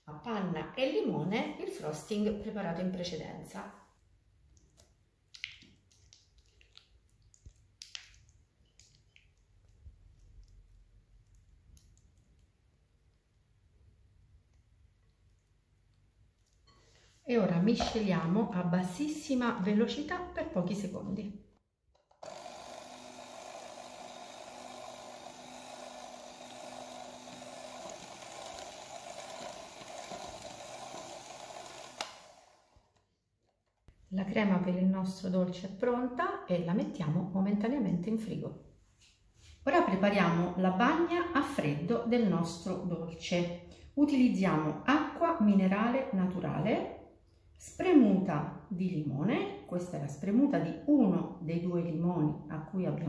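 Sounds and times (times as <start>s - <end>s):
electric hand mixer running: 22.0s - 33.0s.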